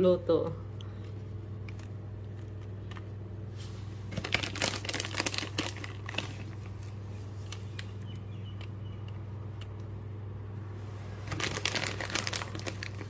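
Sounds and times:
steady low hum: 0:00.0 - 0:13.0
shredded cheese crinkling: 0:04.0 - 0:08.1, 0:11.1 - 0:13.0.

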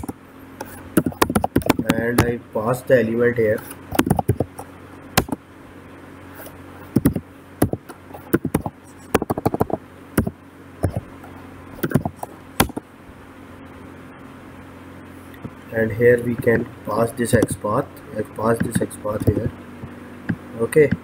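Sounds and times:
low hum: 0:00.0 - 0:21.0
computer keyboard typing: 0:01.0 - 0:02.0, 0:03.9 - 0:04.6, 0:06.9 - 0:11.0, 0:11.8 - 0:12.8.

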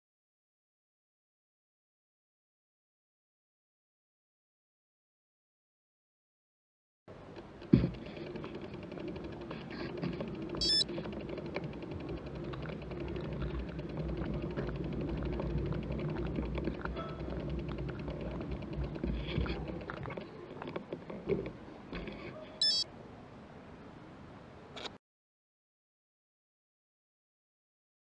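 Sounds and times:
small clicks: 0:07.3 - 0:22.8
wind rumbling: 0:07.5 - 0:22.2
short high electronic beep: 0:10.6 - 0:10.8, 0:22.6 - 0:22.8.

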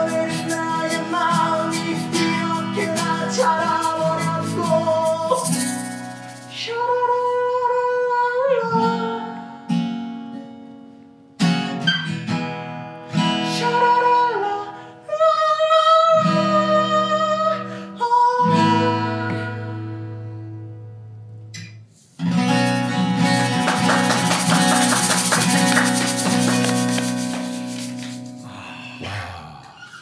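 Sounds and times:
man singing: 0:00.0 - 0:05.8, 0:06.5 - 0:09.4, 0:13.4 - 0:19.7
acoustic guitars strumming: 0:00.0 - 0:07.5, 0:08.7 - 0:14.2, 0:18.4 - 0:28.7.

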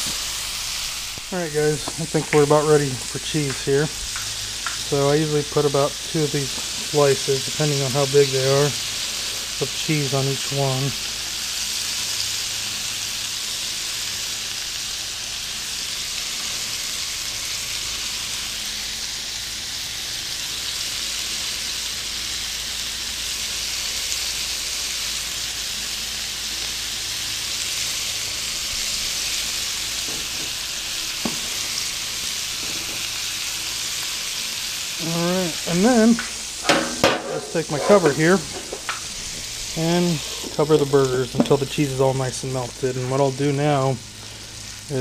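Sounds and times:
burger patties sizzling on griddle: 0:00.0 - 0:45.0.

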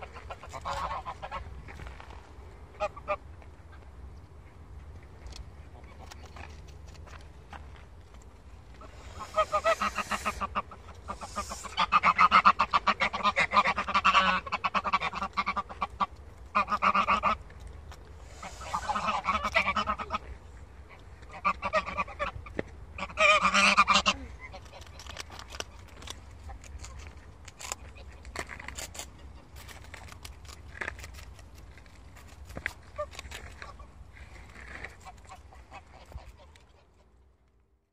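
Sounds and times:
geese honking: 0:00.0 - 0:01.4, 0:08.8 - 0:17.4, 0:18.2 - 0:20.3, 0:21.3 - 0:24.8.

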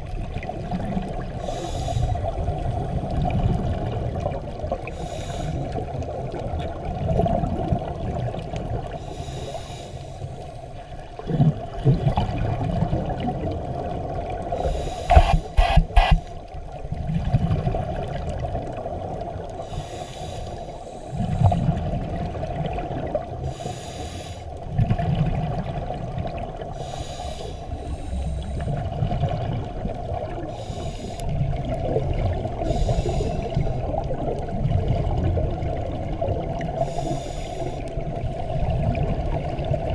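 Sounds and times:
exhaled bubbles rumbling: 0:00.0 - 0:05.0, 0:05.6 - 0:09.0, 0:10.8 - 0:19.7, 0:21.1 - 0:23.6, 0:24.6 - 0:26.8, 0:27.7 - 0:30.6, 0:31.3 - 0:39.9
regulator inhalation hiss: 0:01.4 - 0:02.3, 0:05.0 - 0:05.7, 0:09.0 - 0:10.4, 0:14.6 - 0:16.4, 0:19.6 - 0:21.2, 0:23.5 - 0:24.5, 0:26.8 - 0:28.7, 0:30.5 - 0:31.3, 0:32.6 - 0:33.8, 0:36.8 - 0:37.9
sharp clicks: 0:15.1 - 0:16.3.

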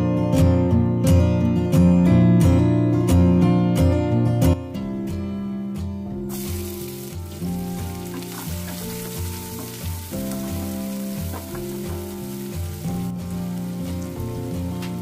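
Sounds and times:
background music: 0:00.0 - 0:15.0
onions sizzling in hot oil: 0:06.3 - 0:15.0
wooden spatula stirring: 0:07.3 - 0:15.0.

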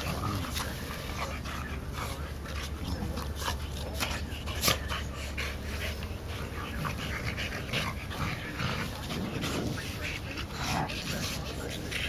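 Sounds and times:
dogs play-fighting noises: 0:00.0 - 0:12.0.

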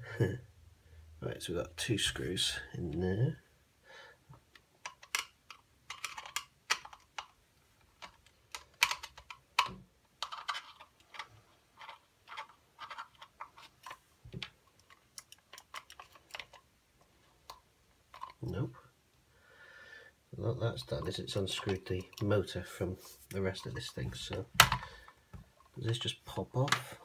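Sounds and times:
plastic casing being handled: 0:04.5 - 0:18.6, 0:20.8 - 0:22.5, 0:23.1 - 0:26.0.

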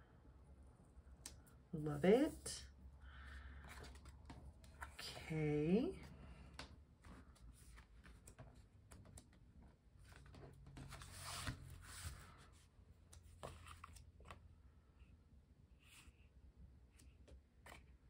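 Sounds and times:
paper rustling and sliding: 0:10.0 - 0:12.6.

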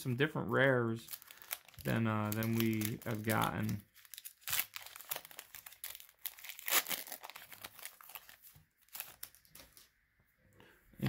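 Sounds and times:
foil wrapper crinkling: 0:01.0 - 0:09.9.

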